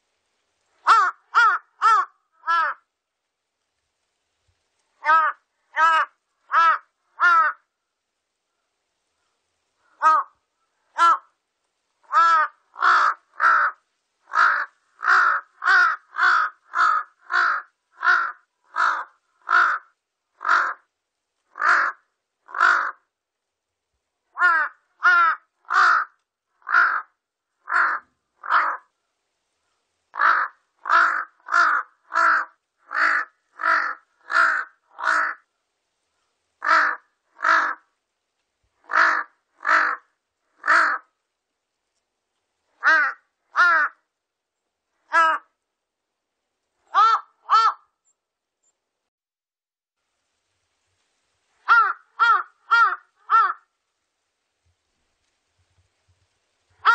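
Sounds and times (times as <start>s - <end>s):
crow cawing: 0.8s - 2.9s, 5.0s - 7.7s, 9.8s - 11.4s, 12.0s - 20.9s, 21.5s - 23.1s, 24.3s - 28.9s, 30.1s - 35.5s, 36.6s - 37.9s, 38.8s - 41.1s, 42.8s - 44.1s, 45.0s - 45.6s, 46.9s - 48.0s, 51.6s - 53.7s.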